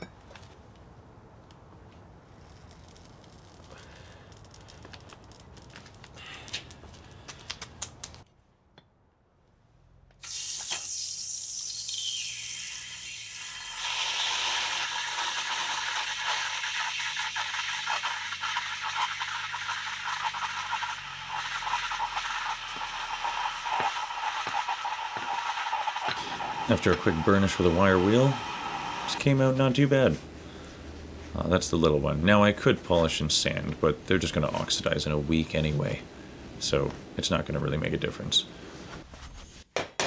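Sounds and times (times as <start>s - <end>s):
hot metal sizzling in water: 10.2s - 29.2s.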